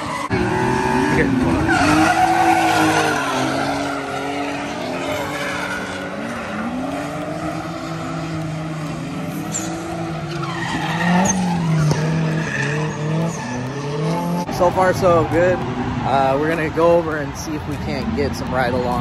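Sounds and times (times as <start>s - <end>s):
tyres squealing: 0.0s - 15.4s
car engines revving: 0.0s - 19.0s.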